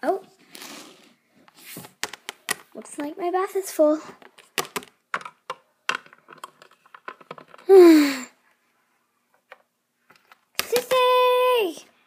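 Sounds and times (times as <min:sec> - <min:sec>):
person sighing: 0:07.6 - 0:08.4.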